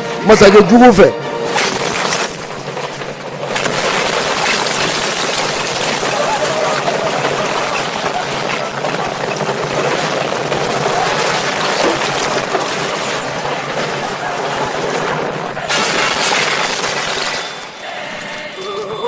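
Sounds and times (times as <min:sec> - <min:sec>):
rumbling and crumbling debris: 0:00.3 - 0:19.0.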